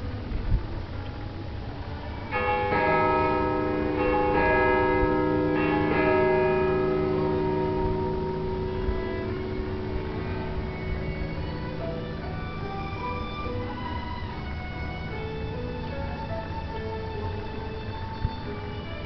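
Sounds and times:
church bells ringing: 1.8 - 19.0.

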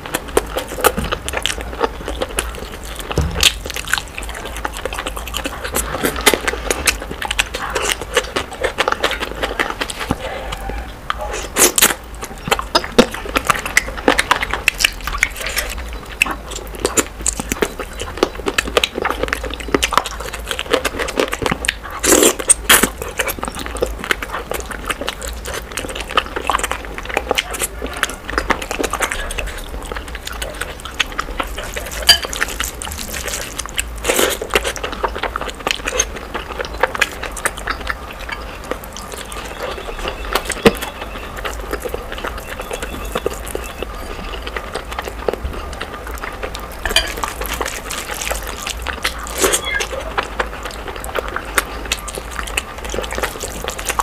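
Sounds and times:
sped-up chewing and crunching: 0.0 - 54.0.

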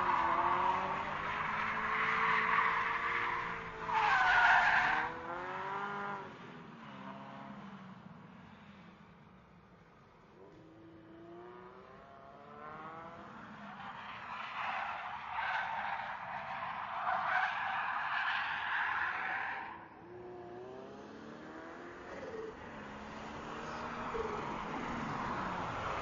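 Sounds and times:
racing car engine accelerating: 4.9 - 6.3, 10.5 - 13.7.

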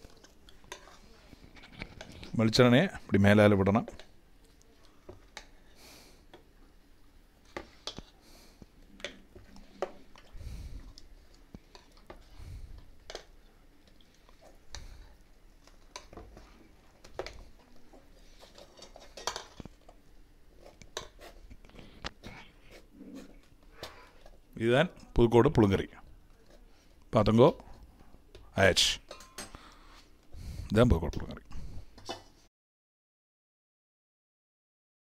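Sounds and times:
spoon stirring thick curry: 0.0 - 2.7, 3.4 - 25.3, 26.1 - 30.4
metal spoon clinking on pot: 29.0 - 29.6.

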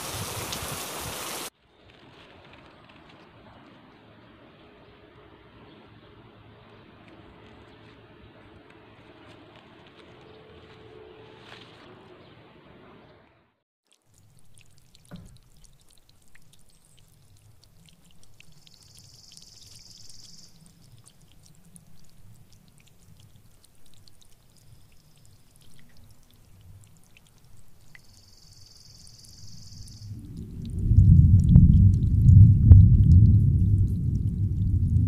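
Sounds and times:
rain dripping on leaves: 0.0 - 3.7, 13.9 - 35.0
faint low rumbling: 30.0 - 35.0.

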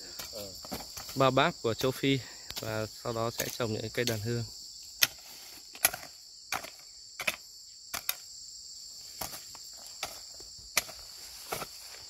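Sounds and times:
insects chirring: 0.0 - 12.0
hoe striking soil: 5.0 - 8.3, 9.1 - 11.9.

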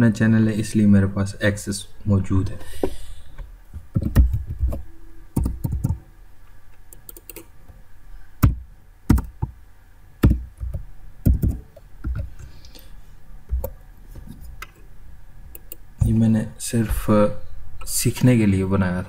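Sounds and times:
keyboard keystrokes: 5.4 - 6.0, 6.9 - 7.4, 10.2 - 12.2.

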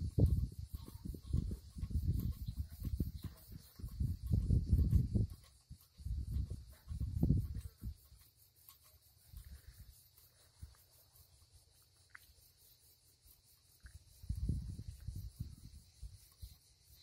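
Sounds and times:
wind buffeting microphone: 0.0 - 8.2, 13.9 - 16.6
insects chirring: 0.0 - 17.0.

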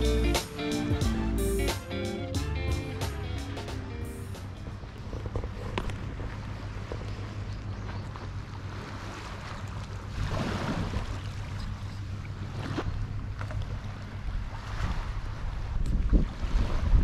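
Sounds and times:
waves washing against breakwater: 8.4 - 17.0.

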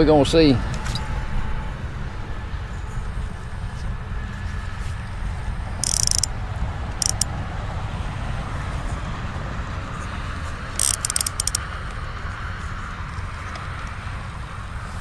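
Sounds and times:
distant highway traffic hum: 0.0 - 15.0
fishing reel rattling clicks: 5.8 - 6.3, 7.0 - 7.3, 10.8 - 11.6.

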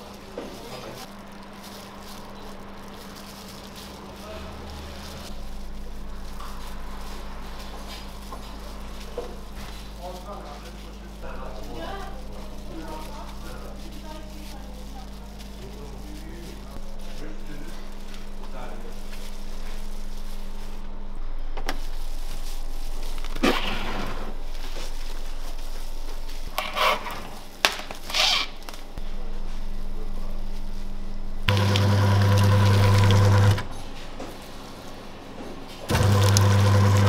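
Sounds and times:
cling film pulled and torn: 21.7 - 28.9
meat grinder motor humming: 31.5 - 33.8, 35.9 - 37.0.

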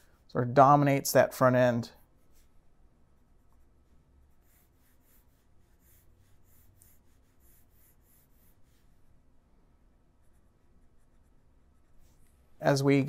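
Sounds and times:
pencil sketching strokes: 2.0 - 9.2, 10.1 - 12.5.

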